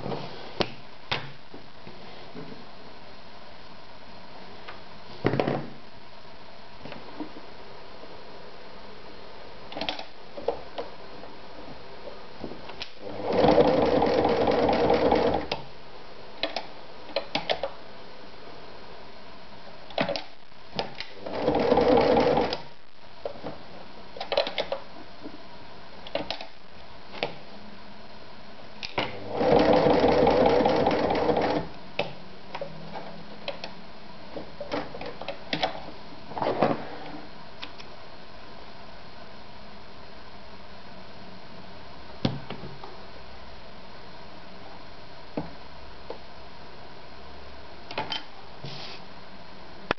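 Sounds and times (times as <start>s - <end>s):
sewing machine stitching leather: 13.0s - 15.6s, 21.1s - 22.6s, 29.0s - 31.7s.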